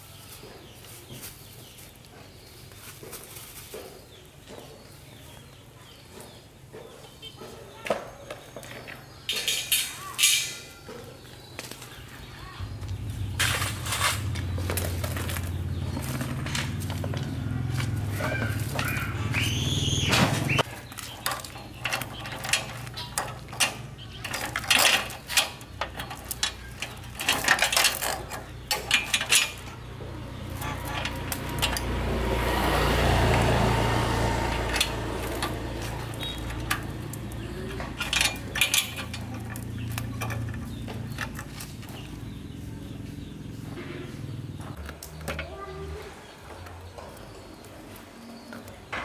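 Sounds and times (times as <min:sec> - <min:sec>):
low rushing rumble: 0:12.6 - 0:20.6
roller chain clinking and rattling: 0:20.5 - 0:42.6.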